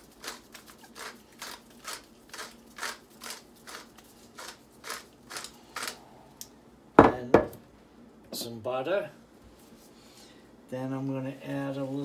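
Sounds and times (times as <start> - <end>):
pepper mill grinding: 0.0 - 6.0.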